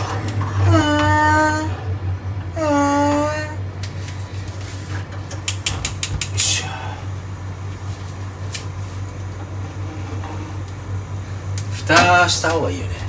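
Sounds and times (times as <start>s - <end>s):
steady low hum: 0.0s - 13.0s
gas stove igniter clicking: 5.3s - 6.6s.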